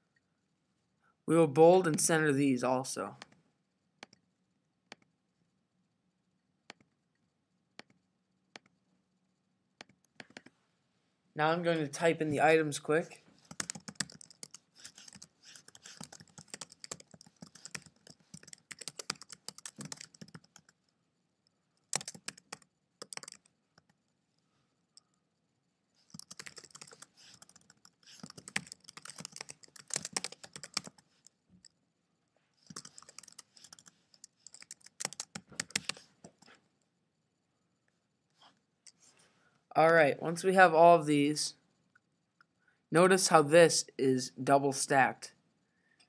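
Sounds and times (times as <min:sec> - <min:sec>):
fast typing on keyboard: 0:13.4 - 0:20.8, 0:21.9 - 0:24.0, 0:26.0 - 0:31.7, 0:32.6 - 0:36.5.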